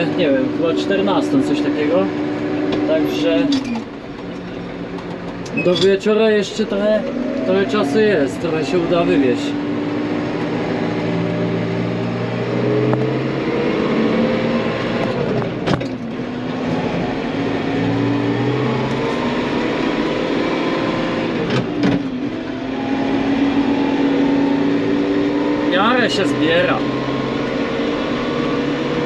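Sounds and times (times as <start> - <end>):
tractor engine under heavy load: 1.9 - 7.5.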